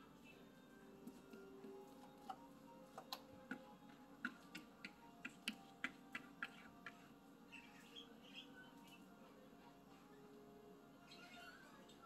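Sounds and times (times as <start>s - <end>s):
paw tapping on screen: 3.0s - 7.1s.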